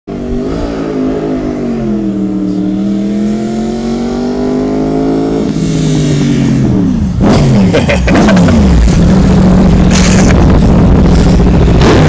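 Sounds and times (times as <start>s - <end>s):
motorcycle engine at high revs: 0.1s - 12.0s.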